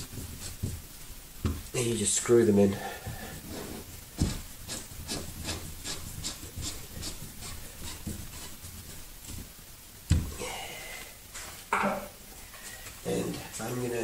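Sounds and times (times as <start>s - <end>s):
dull thump: 1.4s - 1.7s, 10.1s - 10.4s
screw grinding into drywall: 3.6s - 8.6s.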